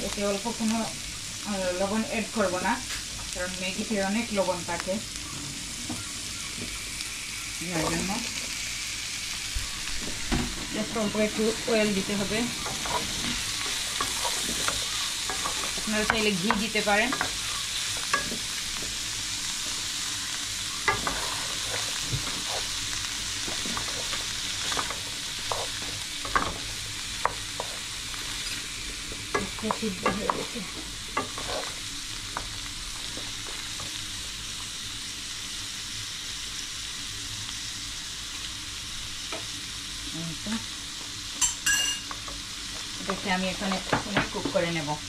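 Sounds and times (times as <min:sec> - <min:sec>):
food sizzling in oil: 0:00.0 - 0:45.0
wooden spatula scraping pan: 0:10.6 - 0:18.9, 0:20.8 - 0:33.9.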